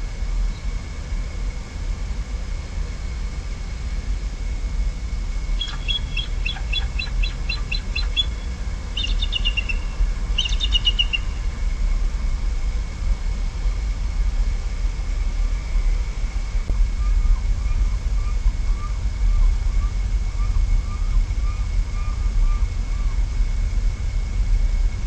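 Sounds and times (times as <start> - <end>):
steady low rumble: 0.0 - 25.0
eagle chirping calls: 5.6 - 11.4.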